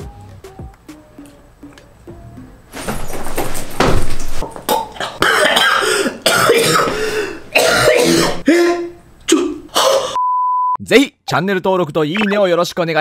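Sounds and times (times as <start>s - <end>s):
man coughing hard: 5.0s - 10.2s.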